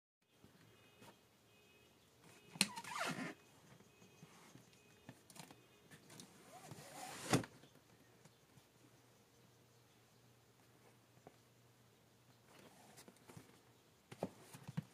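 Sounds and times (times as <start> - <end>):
cardboard box scraping and squeaking: 2.7 - 3.4, 6.3 - 7.6.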